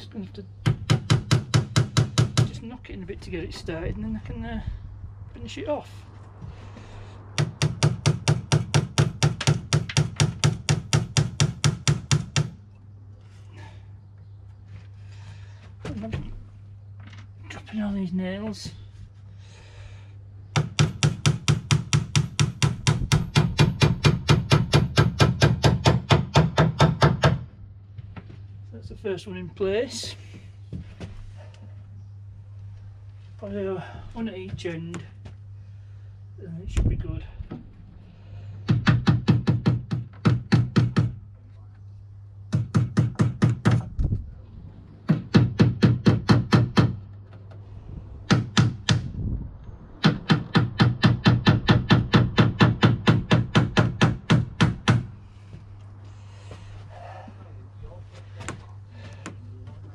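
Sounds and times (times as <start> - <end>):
hammer striking a nail: 0.6 - 2.5, 7.4 - 12.6, 20.5 - 27.4, 38.6 - 41.2, 42.5 - 43.9, 45.1 - 47.0, 48.3 - 49.1, 50.0 - 55.1
hammer tapping nails into wood: 7.4 - 12.6.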